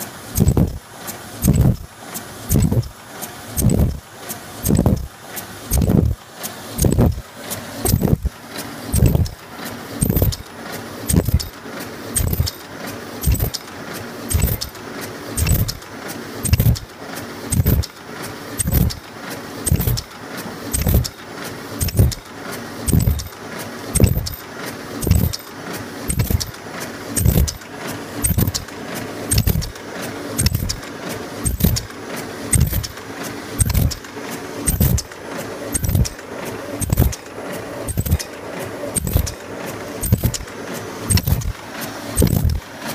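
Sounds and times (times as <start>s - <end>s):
machine knocking rhythmically: 0.0s - 42.9s
mechanical hum: 0.0s - 42.9s
metallic jingle: 12.2s - 12.6s, 13.2s - 13.6s, 14.3s - 14.7s, 22.9s - 23.4s, 24.0s - 24.4s, 25.0s - 25.4s.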